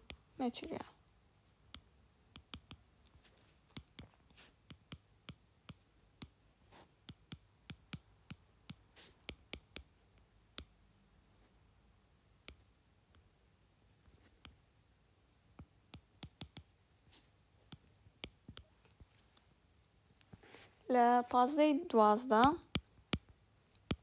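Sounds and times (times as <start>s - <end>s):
stylus tapping on glass screen: 22.3s - 24.0s.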